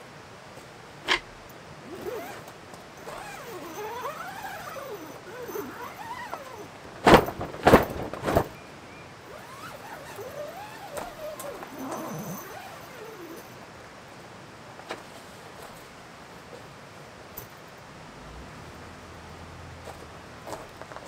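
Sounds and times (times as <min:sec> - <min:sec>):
squeaks: 0:03.0 - 0:07.8, 0:09.3 - 0:13.5.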